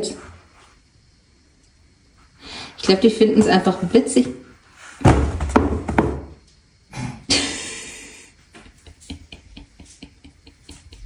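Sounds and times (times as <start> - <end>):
toilet paper rolls falling on tile: 2.9 - 6.4.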